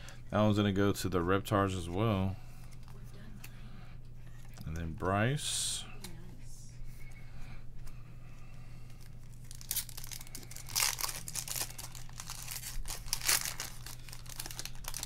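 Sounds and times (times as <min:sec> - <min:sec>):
foil wrapper crinkling and tearing: 0:09.0 - 0:15.0.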